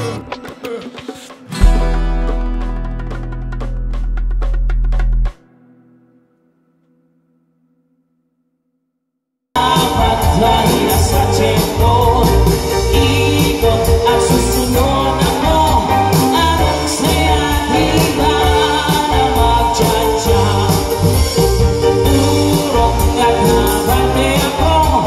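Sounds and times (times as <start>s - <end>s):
live band with singer: 9.6s - 25.0s.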